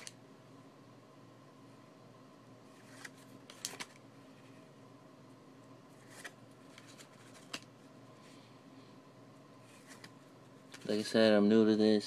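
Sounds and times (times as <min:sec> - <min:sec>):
faint steady hum: 0:00.0 - 0:12.0
cards rustling and slapping: 0:02.7 - 0:04.1, 0:05.9 - 0:07.8, 0:09.6 - 0:11.2.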